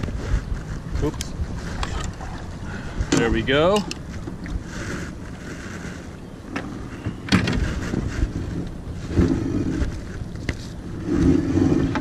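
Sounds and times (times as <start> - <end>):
wind buffeting microphone: 0.0 - 12.0
buoy clunking against boat: 6.5 - 8.3.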